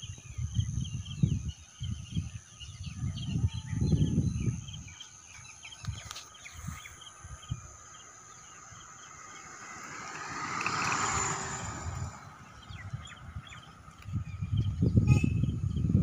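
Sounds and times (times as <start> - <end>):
small birds chirping: 0.0 - 16.0
vehicle passing: 7.8 - 14.1.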